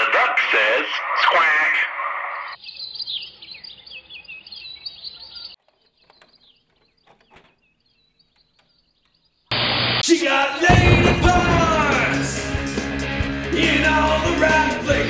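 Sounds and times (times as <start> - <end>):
birds chirping: 0.0 - 10.0.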